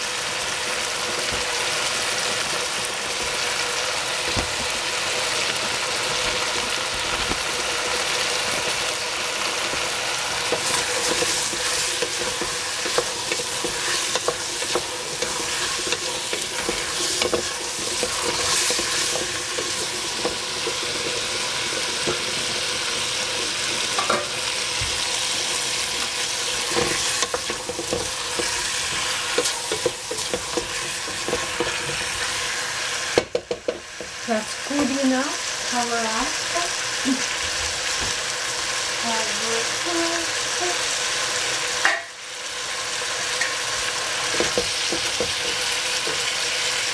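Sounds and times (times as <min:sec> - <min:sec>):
food sizzling in hot pan: 0:00.0 - 0:46.9
spatula clacking and scraping: 0:09.7 - 0:22.5, 0:26.1 - 0:34.2, 0:44.2 - 0:46.4.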